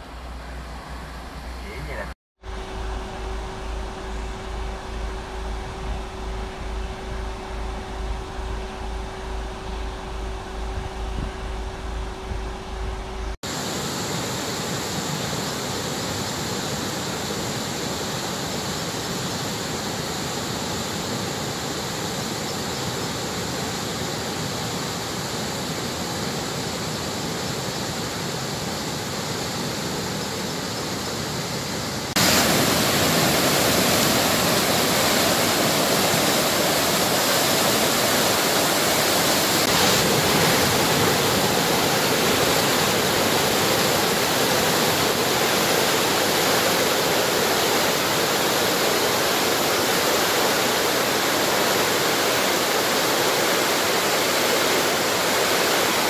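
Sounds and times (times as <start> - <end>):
heavy rushing water: 5.1 - 56.0.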